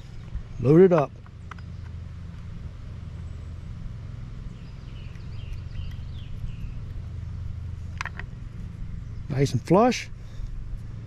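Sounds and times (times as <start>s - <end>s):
steady low hum: 0.0s - 11.0s
faint bird chirps: 4.4s - 7.6s.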